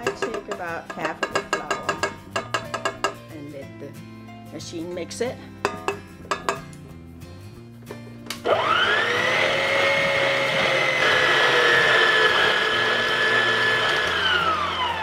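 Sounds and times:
stand mixer motor whine: 8.4 - 15.0.

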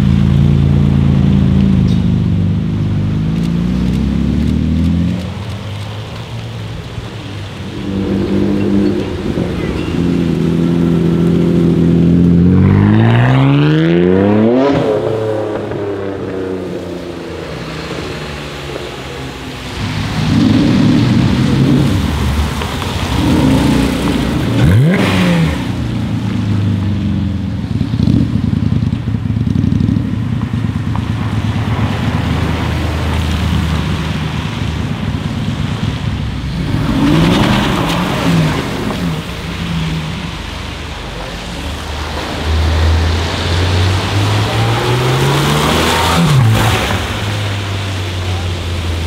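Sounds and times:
sports car engines passing: 0.0 - 49.0
engine revving: 7.6 - 18.4, 19.6 - 26.6, 35.6 - 49.0.

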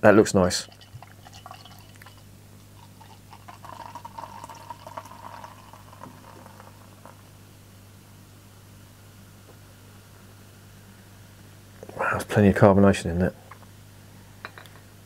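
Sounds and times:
beer pouring into glass: 0.5 - 7.3.

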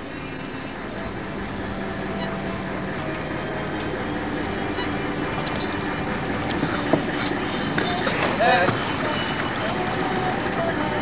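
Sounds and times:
boat engine and line hauler: 0.0 - 11.0.

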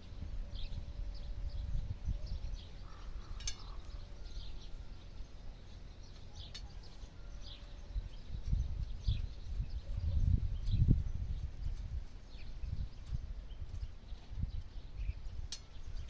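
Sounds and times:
small birds chirping: 0.0 - 16.0
light metallic clinks: 3.2 - 4.4.

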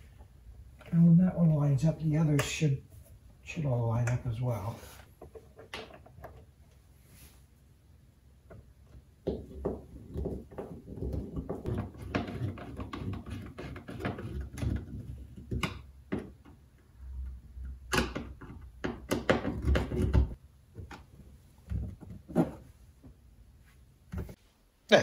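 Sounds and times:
plastic panel knocks and clicks: 17.9 - 21.1.

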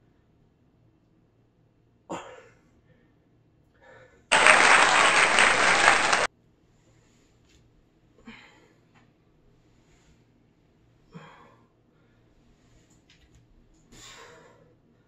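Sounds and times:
clapping applause: 4.3 - 6.3.

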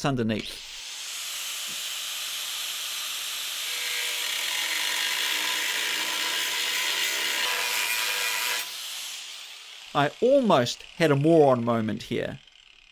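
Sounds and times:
angle grinder cutting steel: 0.4 - 12.9.

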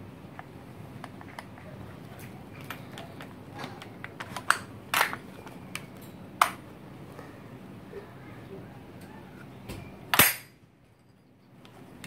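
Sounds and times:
rifle metal parts clicking: 2.2 - 6.6.

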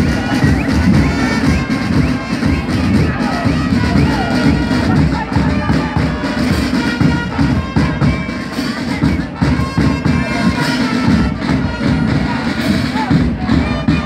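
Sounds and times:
marching band music: 0.0 - 14.0.

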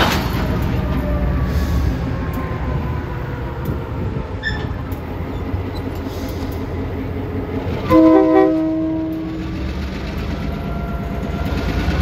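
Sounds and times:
diesel locomotive engine rumbling: 0.0 - 12.0
multi-tone horn blast: 7.8 - 9.4.

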